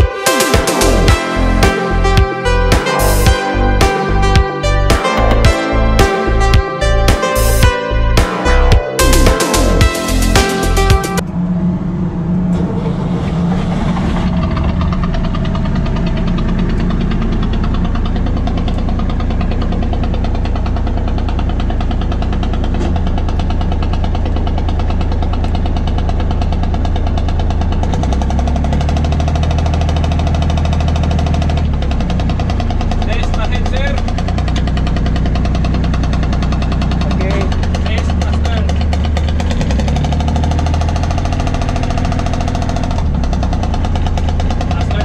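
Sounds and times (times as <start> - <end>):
diesel engine knocking steadily: 14.2 - 45.0.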